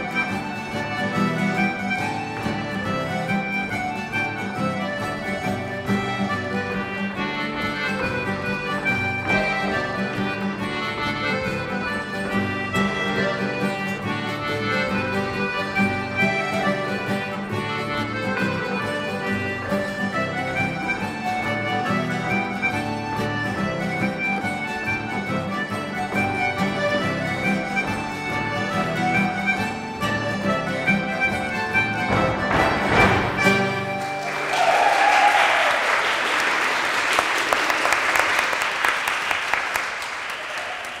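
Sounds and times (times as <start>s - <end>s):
accordion dance tune: 0.0s - 34.6s
audience applause: 34.0s - 41.0s
whoop falling in pitch: 34.5s - 35.8s.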